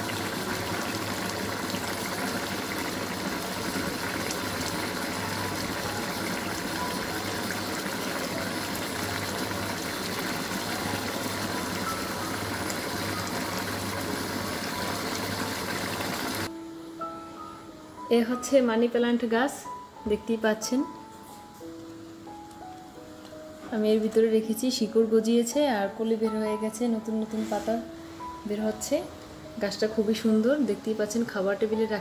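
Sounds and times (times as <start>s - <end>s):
curry boiling in a pan: 0.0s - 16.5s.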